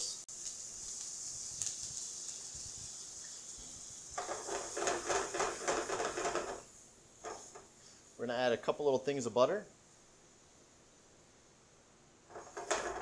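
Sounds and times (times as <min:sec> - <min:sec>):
cream sizzling in a frying pan: 0:00.0 - 0:08.2, 0:12.2 - 0:13.0
pan rattling on a burner: 0:04.2 - 0:07.7, 0:12.3 - 0:13.0.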